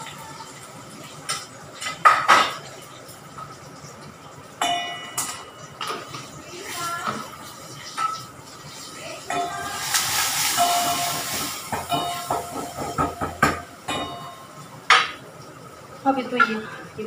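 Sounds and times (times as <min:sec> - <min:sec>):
metal utensils clinking on pots: 0:04.6 - 0:06.3, 0:09.3 - 0:15.2.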